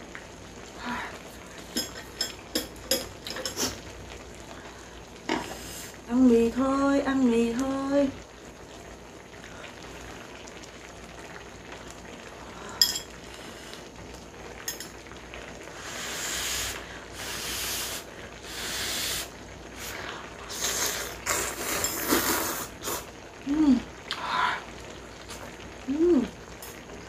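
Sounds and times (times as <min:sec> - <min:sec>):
soft steady hiss: 0:00.0 - 0:27.0
noodles slurped: 0:20.6 - 0:23.1.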